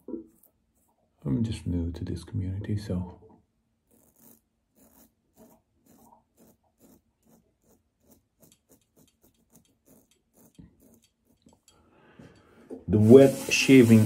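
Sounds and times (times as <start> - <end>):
razor scraping stubble: 0.0 - 1.0, 3.8 - 11.7.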